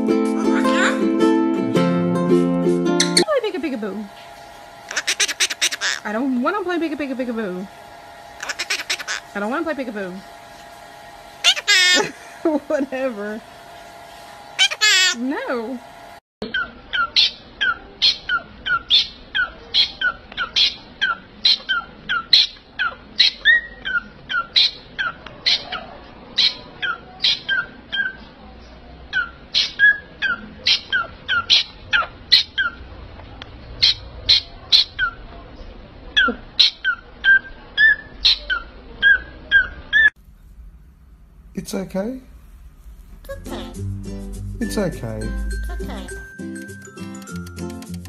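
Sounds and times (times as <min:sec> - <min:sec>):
parrot squawking: 0:00.4 - 0:01.1, 0:04.9 - 0:06.2, 0:08.4 - 0:09.4, 0:11.4 - 0:12.3, 0:14.6 - 0:15.2, 0:16.4 - 0:28.3, 0:29.1 - 0:32.9, 0:33.8 - 0:35.2, 0:36.2 - 0:40.1.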